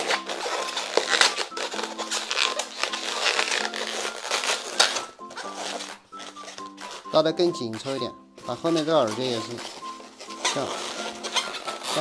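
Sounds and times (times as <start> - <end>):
balloon rubbing and squeaking: 0.0 - 12.0
soft background music: 0.0 - 12.0.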